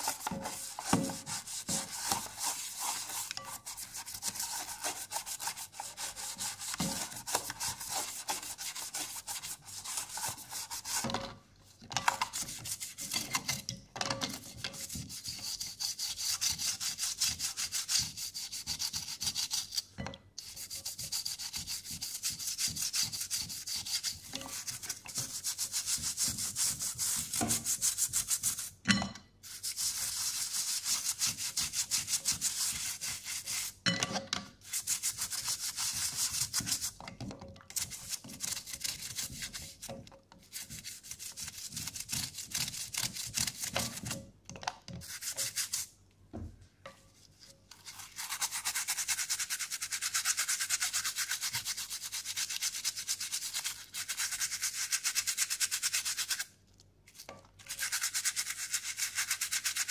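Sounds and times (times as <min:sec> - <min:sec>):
toothbrush scrubbing wet plastic: 0:00.0 - 0:11.2, 0:12.0 - 0:13.7, 0:14.3 - 0:28.8, 0:29.4 - 0:33.8, 0:34.6 - 0:44.2, 0:45.0 - 0:45.9, 0:47.1 - 0:56.5, 0:57.1 - 0:59.9.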